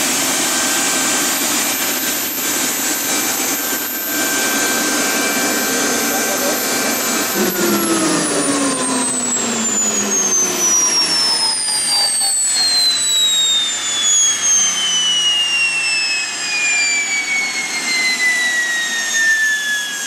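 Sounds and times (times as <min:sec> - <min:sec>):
exhaust rush: 0:00.0 - 0:15.4
turbine whine falling in pitch: 0:00.0 - 0:20.0.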